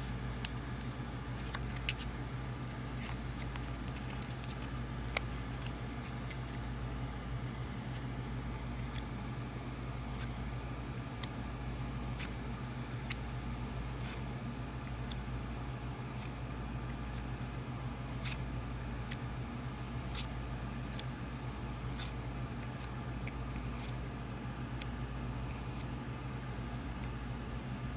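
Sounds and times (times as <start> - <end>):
low background hum: 0.0 - 27.9
trading cards sliding ticks: 0.4 - 6.6, 19.0 - 19.3, 26.9 - 27.2.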